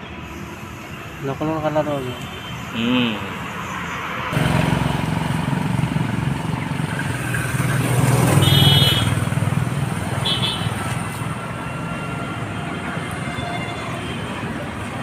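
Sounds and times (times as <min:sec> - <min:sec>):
engine running: 0:04.3 - 0:11.7.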